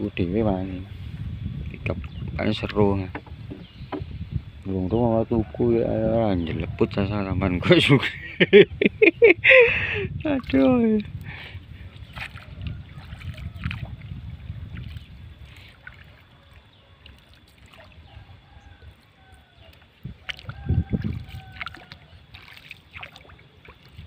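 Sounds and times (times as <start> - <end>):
paddle knocking on canoe: 3.0 - 4.2
paddle splashing in water: 11.9 - 14.1, 14.7 - 18.2, 19.0 - 24.0.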